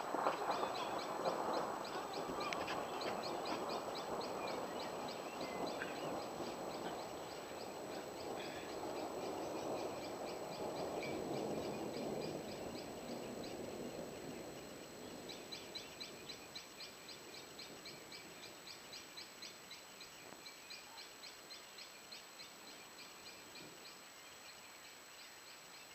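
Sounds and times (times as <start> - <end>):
distant thunder rolling: 0.0 - 19.6.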